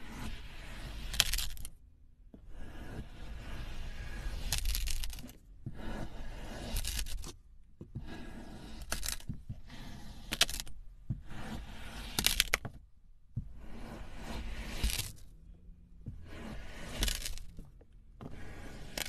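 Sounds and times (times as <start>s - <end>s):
knife slicing kinetic sand: 0.0s - 1.7s, 2.5s - 7.4s, 8.0s - 12.7s, 13.4s - 15.2s, 16.2s - 17.6s, 18.3s - 19.0s.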